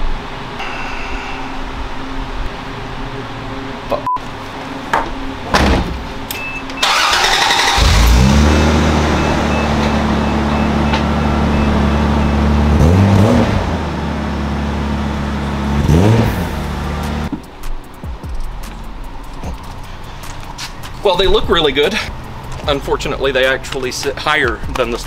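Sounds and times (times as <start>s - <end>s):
car engine starting and idling: 5.2s - 17.3s
engine revving: 6.8s - 17.3s.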